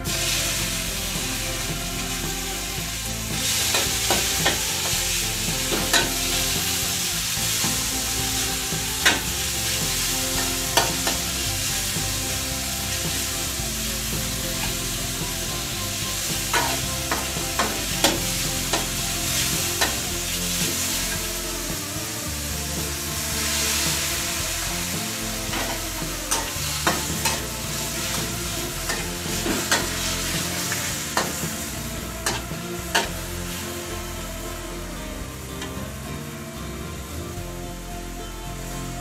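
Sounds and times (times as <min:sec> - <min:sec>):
meat sizzling in a wok: 0:00.0 - 0:34.7.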